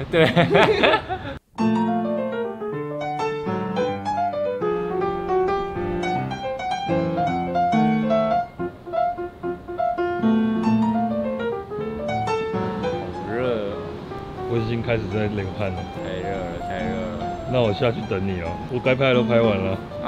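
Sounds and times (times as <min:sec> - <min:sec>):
piano music: 0:01.6 - 0:20.0.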